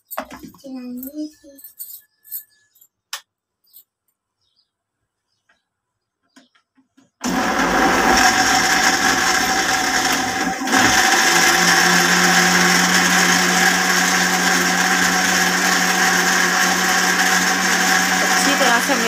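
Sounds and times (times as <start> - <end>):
blender running: 7.2 - 19.0.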